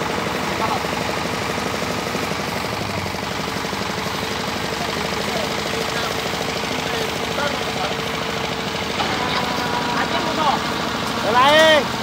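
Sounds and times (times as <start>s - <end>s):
diesel engine running: 0.0s - 12.0s.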